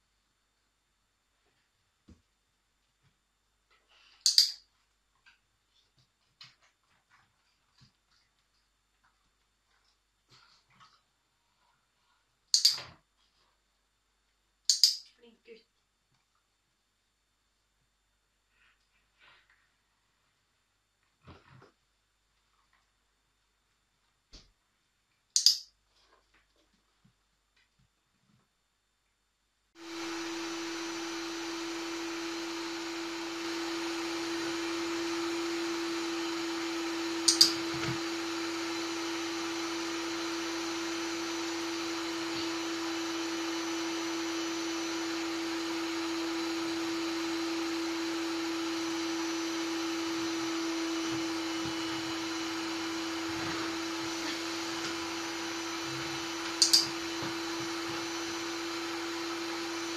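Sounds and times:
sharp double click: 0:14.7 - 0:15.0
vacuum cleaner running: 0:29.8 - 0:59.9.

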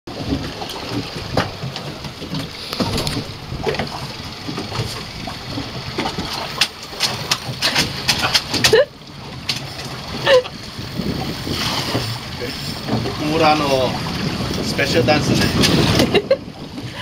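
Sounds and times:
water noise: 0:00.1 - 0:17.0
wind noise: 0:10.3 - 0:17.0.

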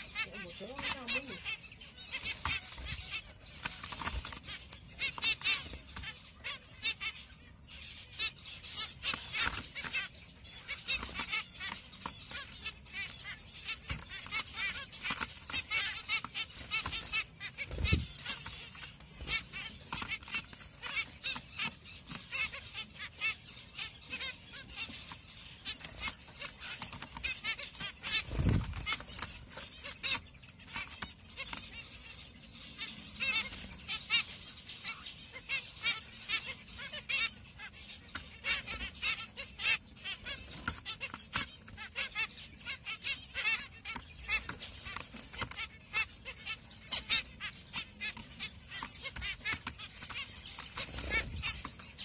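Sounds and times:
small clicks of birds hopping: 0:00.0 - 0:07.0, 0:08.3 - 0:52.0
finches giving rapid calls: 0:00.0 - 0:52.0
wing flutters: 0:28.0 - 0:29.2, 0:50.8 - 0:51.7.

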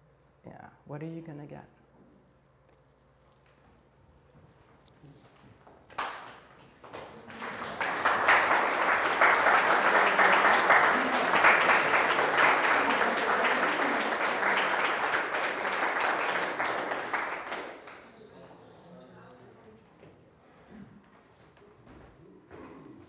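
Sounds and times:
audience applauding: 0:05.9 - 0:18.5.

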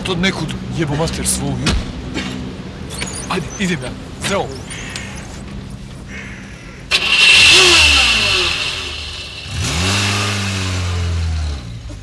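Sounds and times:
car engine starting and revving: 0:06.9 - 0:12.0.

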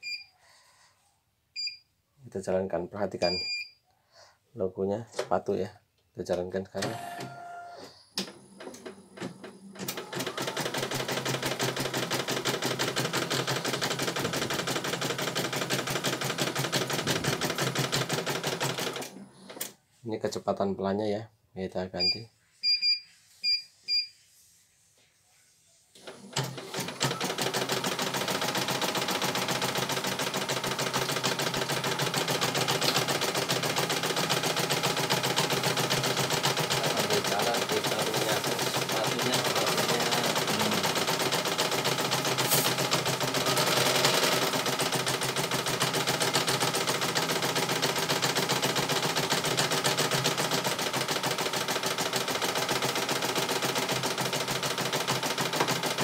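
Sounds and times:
short touchscreen beeps: 0:22.0 - 0:24.1.

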